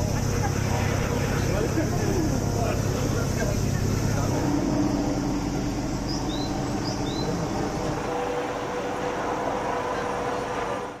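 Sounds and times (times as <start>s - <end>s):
engines and machinery humming: 0.0s - 11.0s.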